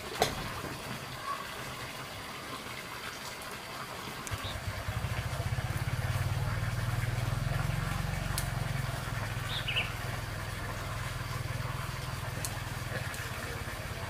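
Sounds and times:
engine running with pulsing rumble: 0:04.3 - 0:14.0.

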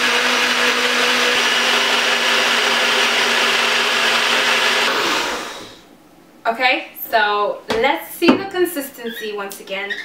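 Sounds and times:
blender motor running: 0:00.0 - 0:05.8.

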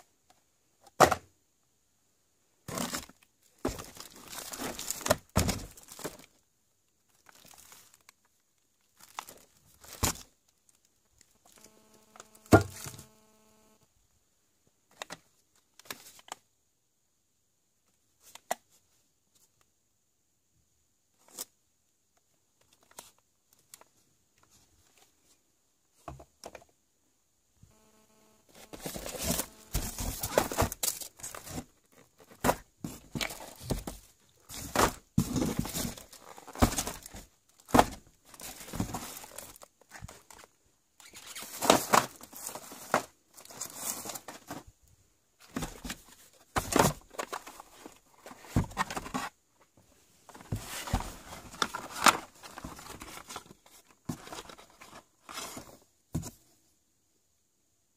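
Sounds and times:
cardboard boxes rustling and scraping: 0:02.6 - 0:06.4, 0:27.7 - 0:44.8, 0:45.4 - 0:56.4.

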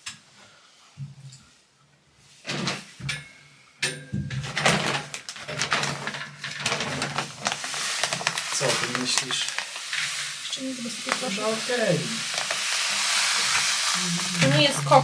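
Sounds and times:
plastic bag crinkling: 0:04.5 - 0:15.0.

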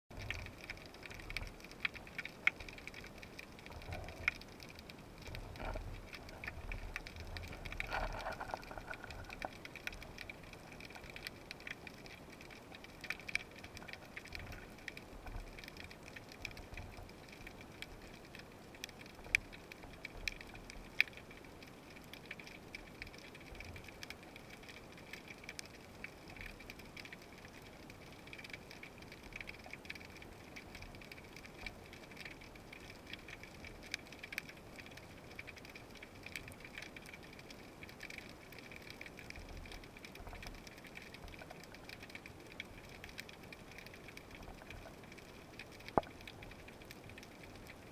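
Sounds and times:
underwater crackle of clicks: 0:00.1 - 0:47.9.

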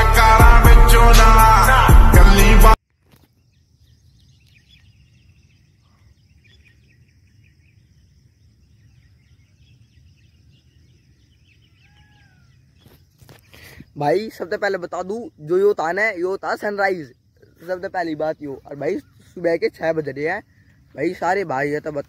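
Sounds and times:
intro music: 0:00.0 - 0:02.8
birds chirping: 0:03.2 - 0:22.0.

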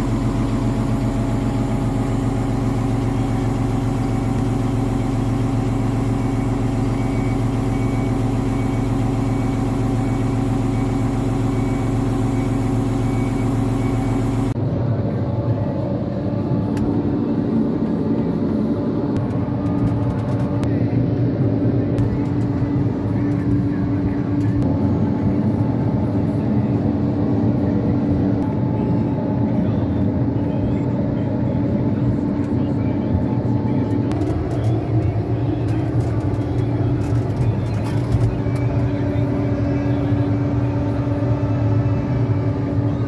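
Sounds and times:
diesel engine running: 0:00.0 - 0:43.0.

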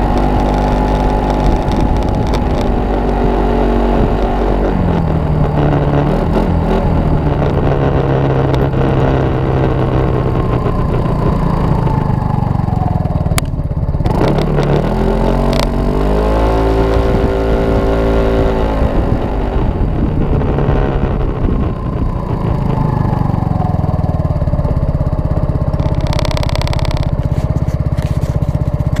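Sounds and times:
scooter engine revving: 0:00.0 - 0:29.0.

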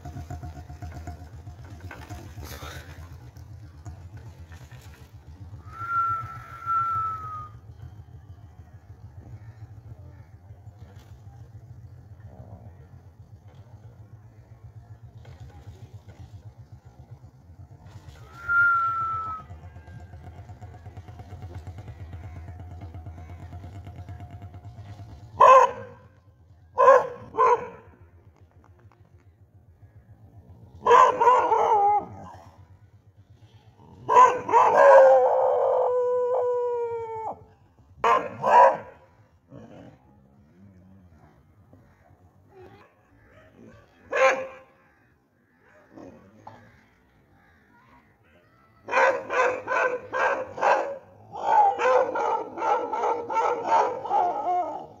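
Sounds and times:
dog barks: 0:25.4 - 0:26.0, 0:26.8 - 0:27.9, 0:30.8 - 0:32.4, 0:34.0 - 0:35.3, 0:38.0 - 0:39.1, 0:42.6 - 0:44.7, 0:48.8 - 0:55.0
dogs howling: 0:30.8 - 0:32.6, 0:34.0 - 0:39.0, 0:48.8 - 0:55.0.

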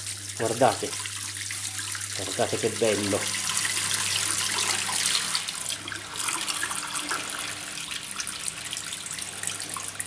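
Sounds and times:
water gushing into sink: 0:00.0 - 0:10.0.

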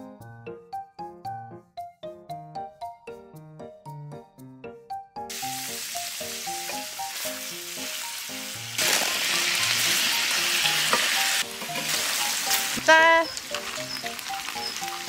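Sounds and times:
meat sizzling in a grill pan: 0:05.3 - 0:15.0.

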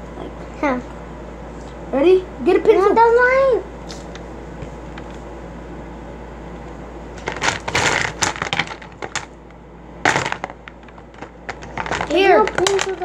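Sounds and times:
pencils rattling and clattering: 0:07.2 - 0:09.3, 0:10.1 - 0:13.0.

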